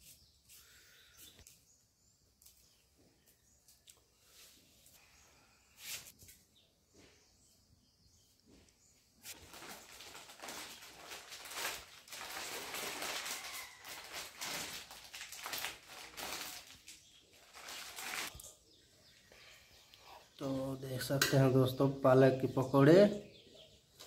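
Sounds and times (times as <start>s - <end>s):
plastic packet crinkling: 9.3s - 18.5s.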